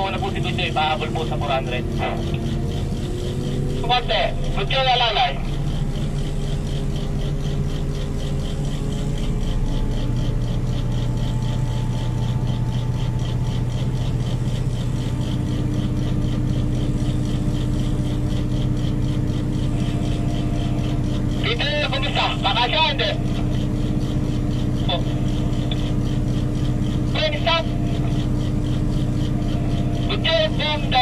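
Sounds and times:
crane diesel engine running: 0:00.0 - 0:31.0.

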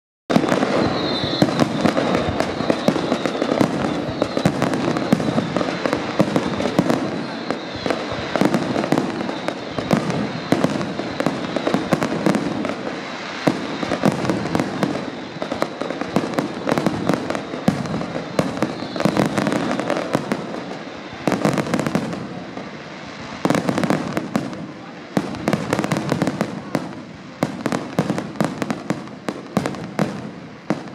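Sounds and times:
fireworks bangs and crackling: 0:00.3 - 0:30.9.

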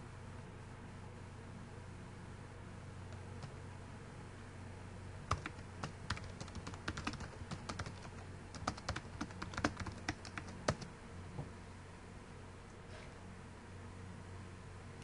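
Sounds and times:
computer keyboard typing: 0:05.3 - 0:10.9.

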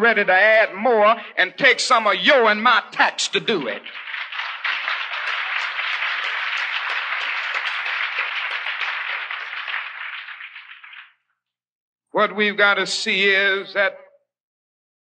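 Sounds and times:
audience applauding: 0:02.9 - 0:11.2.

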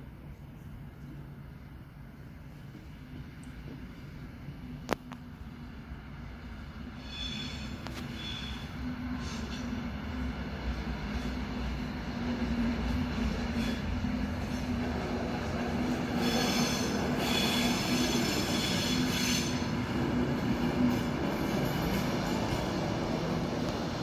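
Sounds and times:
diesel locomotive engine rumble: 0:00.0 - 0:24.0
high-pitched metallic squeal: 0:07.0 - 0:09.8, 0:16.2 - 0:19.8.

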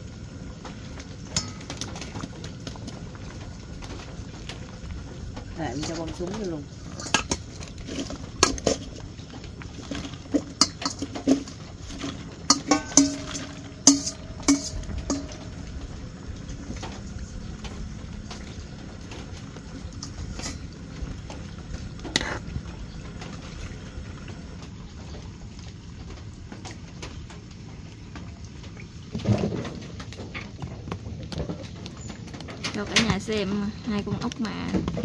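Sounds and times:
soup simmering hiss: 0:00.0 - 0:25.8
ladle clinking against pot: 0:10.4 - 0:15.8.

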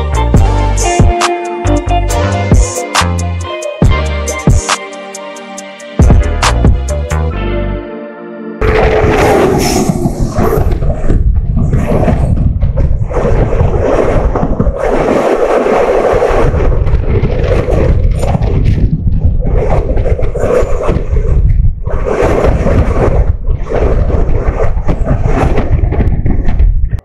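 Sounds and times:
wind buffeting microphone: 0:08.6 - 0:27.0.

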